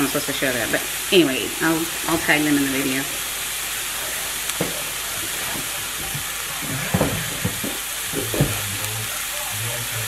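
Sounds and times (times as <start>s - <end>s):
cauliflower rice sizzling in a skillet: 0.0s - 10.0s
dull knocks: 4.5s - 8.7s.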